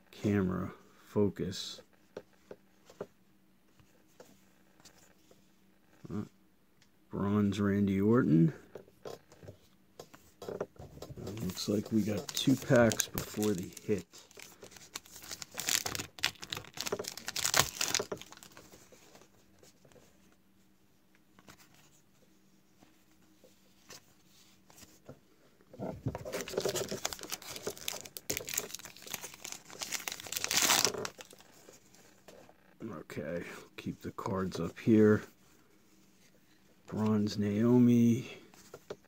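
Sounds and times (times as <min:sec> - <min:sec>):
card pack wrappers tearing: 0:11.4 - 0:18.6, 0:26.3 - 0:31.5.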